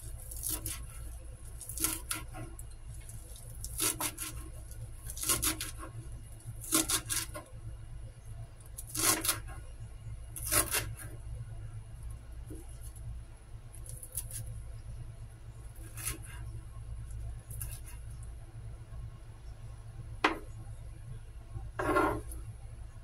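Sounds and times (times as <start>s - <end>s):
steady low hum: 0.0s - 23.0s
knife cutting on a cutting board: 0.2s - 2.6s, 3.6s - 5.9s, 6.6s - 7.4s, 8.8s - 9.5s, 10.4s - 11.2s, 15.8s - 16.4s, 17.6s - 18.0s, 21.8s - 22.4s.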